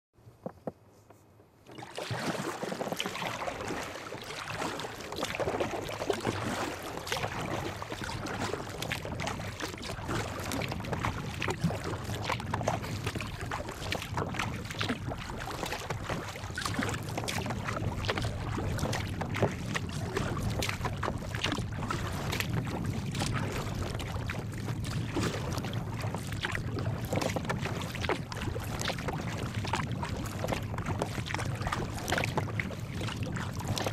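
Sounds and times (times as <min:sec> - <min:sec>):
water splashing against kayak hull: 0:01.5 - 0:33.9.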